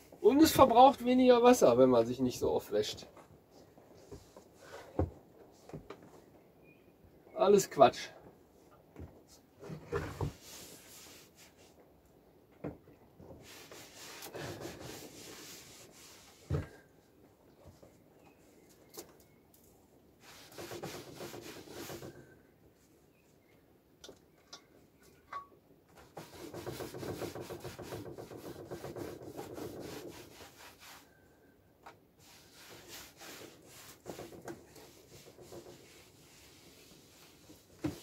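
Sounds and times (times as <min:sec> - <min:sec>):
light knocks of objects moved: 0:02.9 - 0:06.5
scrubbing on wooden tabletop: 0:10.3 - 0:11.7, 0:13.4 - 0:16.8, 0:20.2 - 0:22.2, 0:26.0 - 0:31.1, 0:32.2 - 0:38.0.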